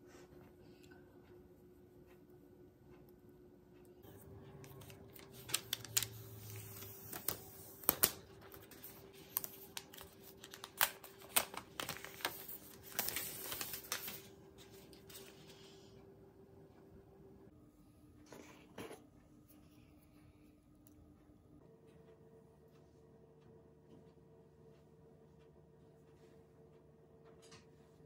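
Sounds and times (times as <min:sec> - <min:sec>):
faint steady hum: 0:00.0 - 0:28.0
plastic film crackling: 0:04.6 - 0:15.2.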